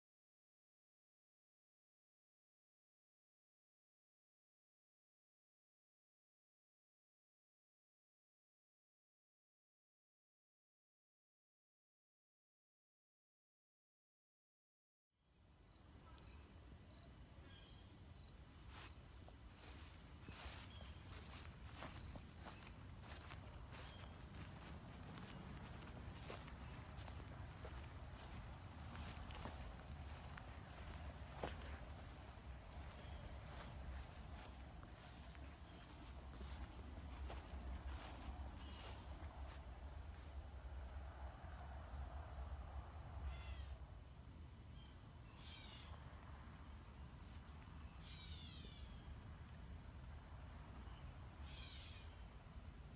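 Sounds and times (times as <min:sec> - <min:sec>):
insect chirp: 0:15.2 - 0:52.9.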